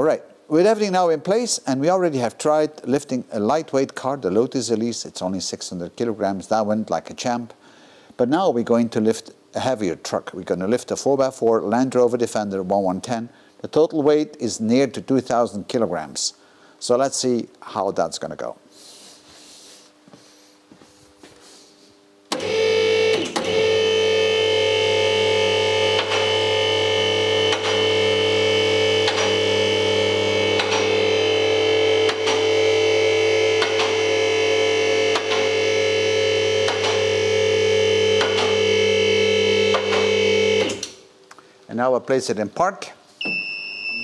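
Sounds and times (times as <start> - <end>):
hydraulic power unit humming: 18.8 - 41.2.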